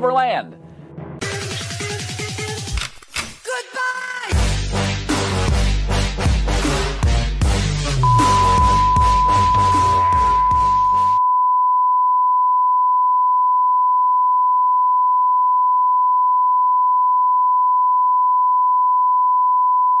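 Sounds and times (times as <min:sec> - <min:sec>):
electronic music: 0:05.1 - 0:11.2.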